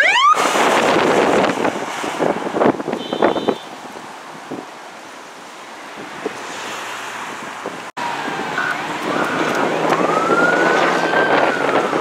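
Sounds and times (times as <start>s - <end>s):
emergency siren wailing: 0.0s - 0.7s, 8.0s - 12.0s
road noise: 0.0s - 12.0s
wind rumbling on microphone: 0.2s - 4.8s, 5.8s - 12.0s.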